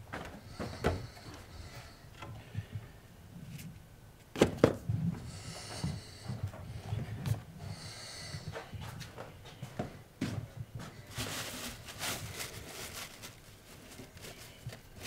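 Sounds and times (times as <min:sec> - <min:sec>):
footsteps on wooden floor: 0:05.1 - 0:11.0
handling rustle: 0:10.9 - 0:15.0.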